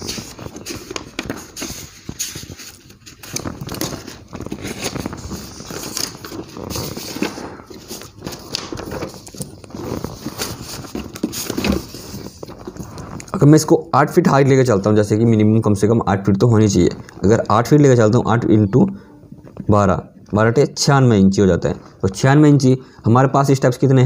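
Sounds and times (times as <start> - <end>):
paper rustling: 0.0 - 15.8.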